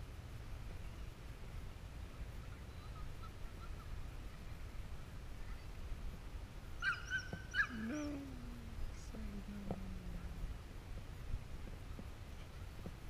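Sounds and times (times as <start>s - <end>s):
dog barking: 6.8s - 7.8s
low drawn-out calls: 6.8s - 8.0s.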